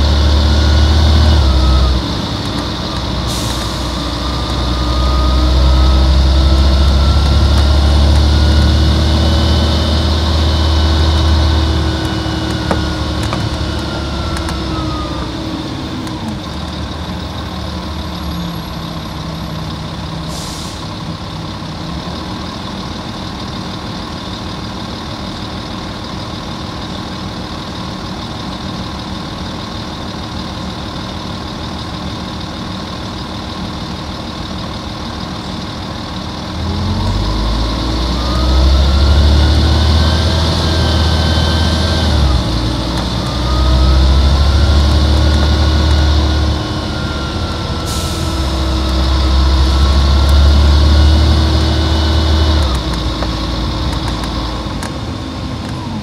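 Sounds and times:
bus diesel engine: 0.0 - 56.0
gearbox whine falling in pitch: 4.0 - 15.4
air hiss: 20.3 - 21.0.

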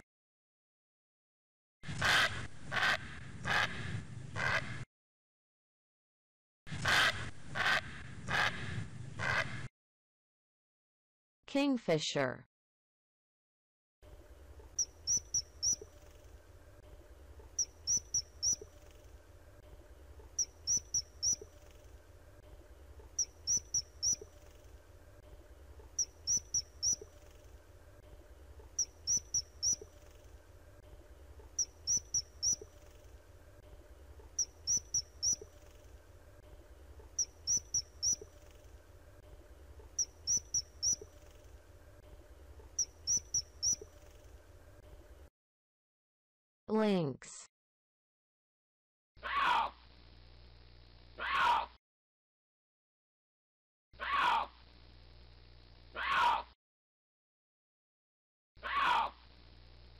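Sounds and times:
kingfisher calling shrill piping notes: 14.8 - 15.8, 40.0 - 41.0.

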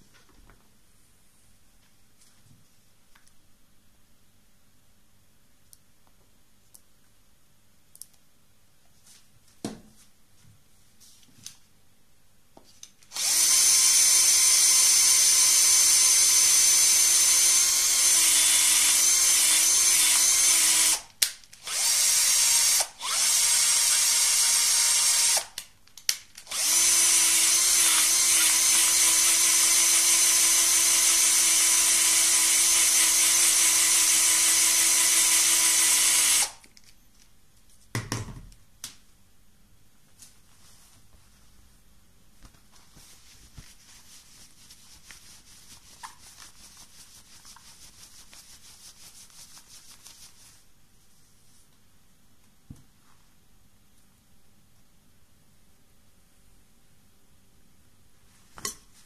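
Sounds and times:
power drill whining: 13.1 - 25.5, 26.5 - 36.6.

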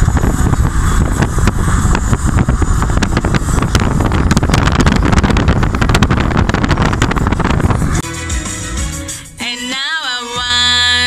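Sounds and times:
wind buffeting microphone: 0.0 - 8.0.

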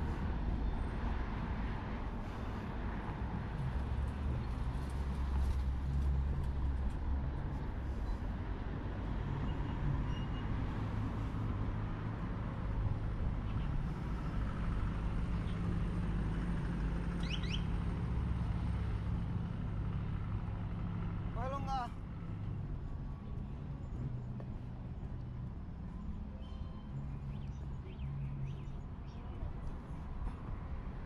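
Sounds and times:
road traffic rumble: 0.0 - 31.0.

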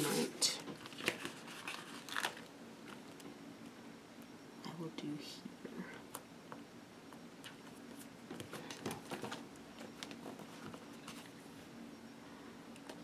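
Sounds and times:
stickers peeling and paper rustling: 0.0 - 3.2
low room hum: 0.0 - 13.0.

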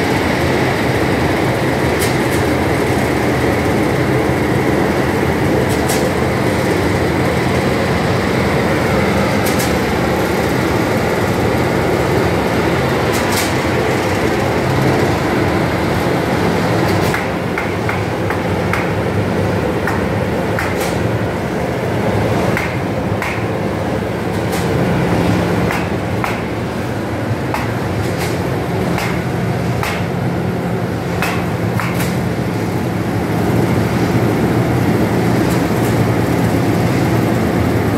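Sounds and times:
loud machine drone: 0.0 - 37.9
sharp clicks and knocks: 16.9 - 19.0, 19.8 - 21.0, 22.6 - 23.5, 25.7 - 26.5, 27.5 - 30.1, 31.2 - 32.2.

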